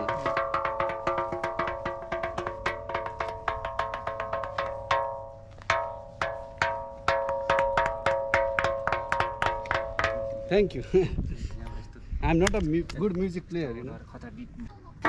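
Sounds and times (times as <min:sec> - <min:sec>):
stone striking ringing boulder: 0:00.0 - 0:10.7.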